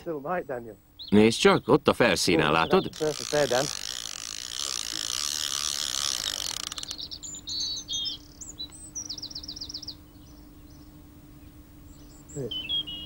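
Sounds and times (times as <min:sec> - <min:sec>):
songbird singing: 0:00.0 - 0:13.0
fishing reel ratchet buzzing: 0:02.6 - 0:07.2.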